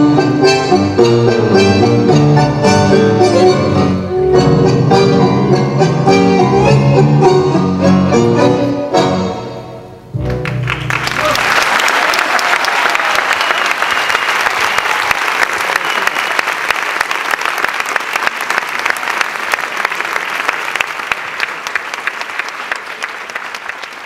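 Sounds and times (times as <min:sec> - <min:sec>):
audience applauding: 0:10.2 - 0:24.0.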